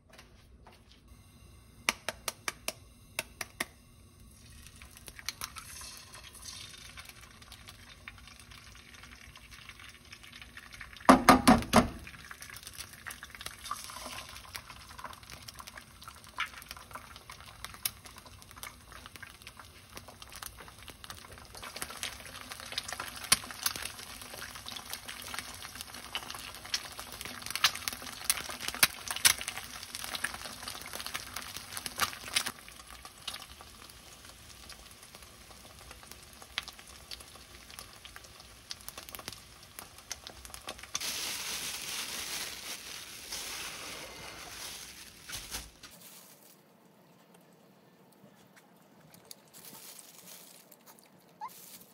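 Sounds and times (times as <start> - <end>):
oil crackling and popping: 1.9 - 46.2
eggs sizzling in oil: 3.2 - 45.3
plastic bags rustling: 40.4 - 46.7, 49.1 - 51.9.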